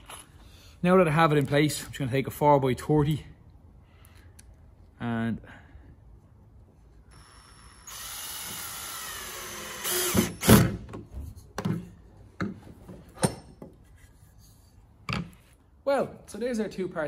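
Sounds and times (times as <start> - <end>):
cordless drill driving screw: 7.1 - 10.8.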